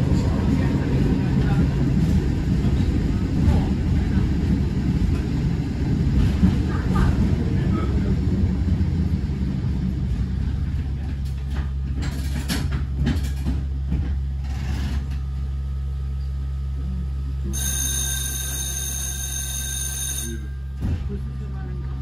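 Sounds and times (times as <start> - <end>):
tram humming: 0.0 - 12.2, 17.5 - 22.0
electric signal bell ringing: 17.5 - 20.7.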